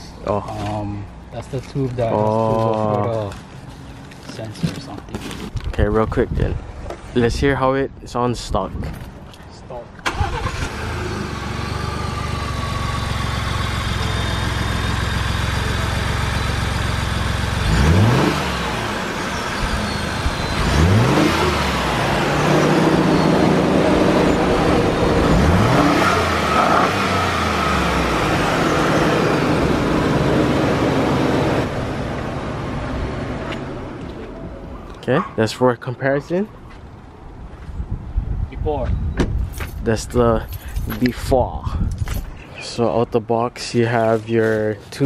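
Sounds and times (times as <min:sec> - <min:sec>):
car engine idling and revving: 0:10.0 - 0:34.8.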